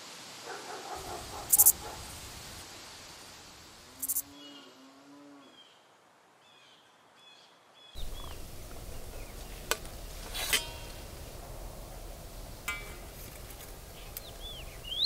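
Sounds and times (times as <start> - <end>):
outdoor hiss: 0.0 - 5.1, 5.7 - 15.0
bird calls: 0.9 - 2.3, 6.4 - 15.0
metal spatula clinking on plate: 10.3 - 11.0.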